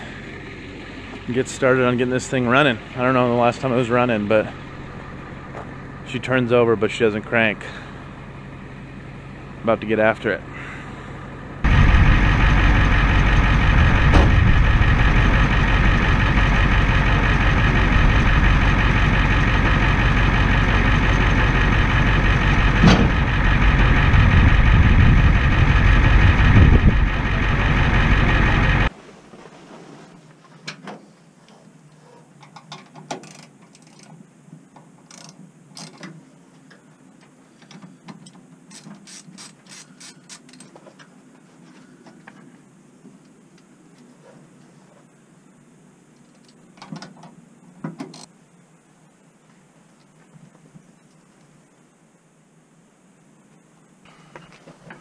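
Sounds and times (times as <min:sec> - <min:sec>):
geared motor whining: 0:10.5 - 0:28.9.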